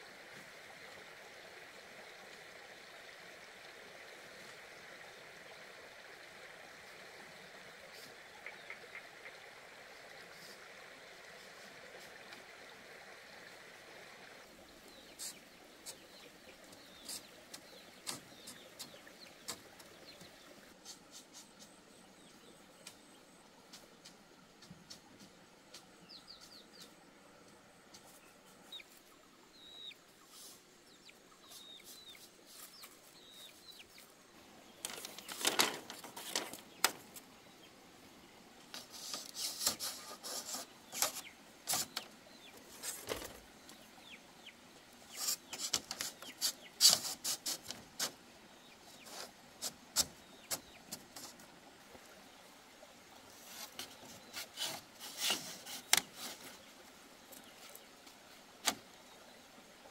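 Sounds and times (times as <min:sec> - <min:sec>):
faint bird chirps: 0:14.6 - 0:23.5
bamboo strips knocking and rattling: 0:34.8 - 0:37.2, 0:42.7 - 0:43.5, 0:53.5 - 0:56.5.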